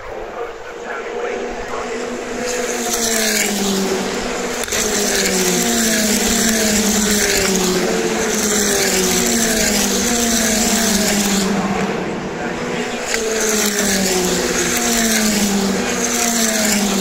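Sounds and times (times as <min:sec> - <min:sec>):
race cars passing at speed: 0:00.1 - 0:17.0.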